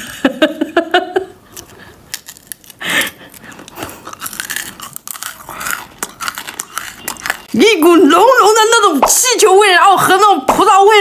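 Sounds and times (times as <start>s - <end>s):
hard candy crunching: 1.5s - 8.8s.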